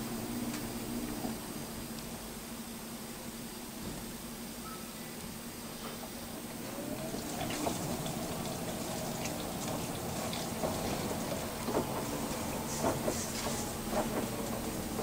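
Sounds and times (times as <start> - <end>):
washer motor whine: 0.0 - 15.0
water sloshing in drum: 7.0 - 15.0.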